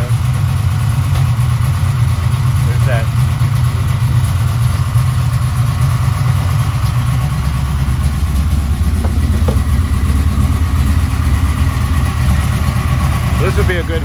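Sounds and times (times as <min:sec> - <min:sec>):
engine idling: 0:00.0 - 0:14.0
exhaust pop: 0:03.3 - 0:14.0.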